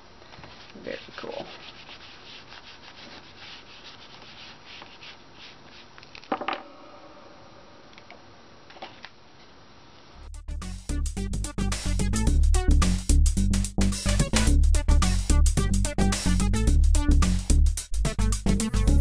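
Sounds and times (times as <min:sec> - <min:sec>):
foam tool scratching paper: 0:00.4 - 0:06.0
music: 0:10.1 - 0:19.0.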